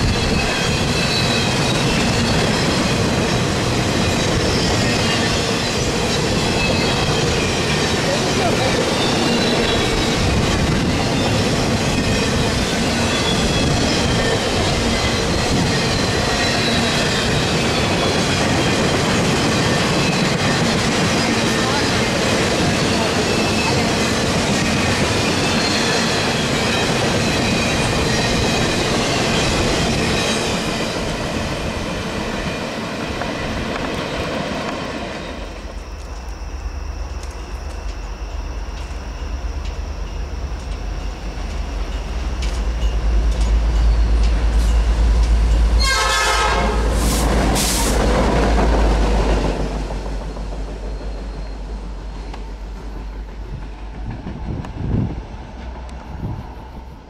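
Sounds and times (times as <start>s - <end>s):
diesel locomotive engine rumble: 0.0s - 57.0s
train rumble and rolling noise: 0.0s - 57.0s
train horn: 45.8s - 47.2s.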